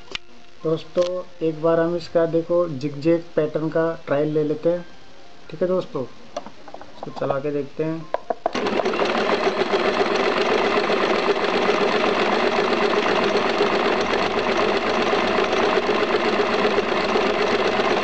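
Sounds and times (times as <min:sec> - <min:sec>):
sewing machine running: 0:08.5 - 0:18.0.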